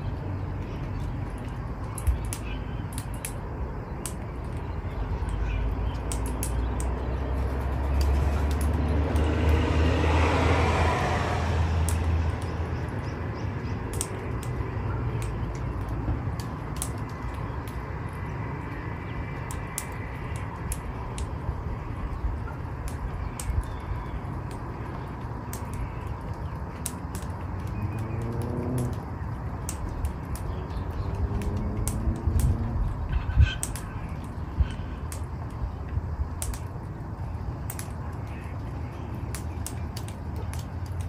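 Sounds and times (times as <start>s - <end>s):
faint sharp clicks: 0.6s - 3.4s, 4.0s - 7.1s, 7.8s - 9.6s, 11.8s - 13.0s, 13.9s - 21.4s, 22.0s - 33.0s, 33.6s - 41.0s
vehicle passing by: 6.7s - 16.8s, 27.0s - 34.2s.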